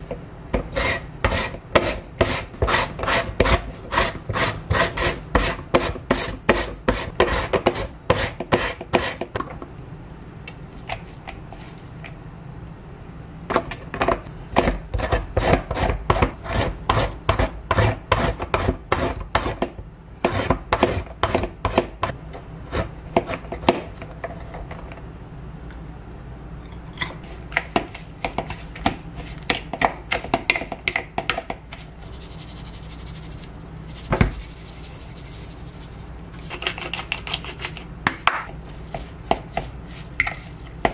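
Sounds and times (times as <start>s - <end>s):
vegetables rasping on slicer blades: 0.6s - 9.3s, 20.2s - 23.7s, 31.7s - 40.9s.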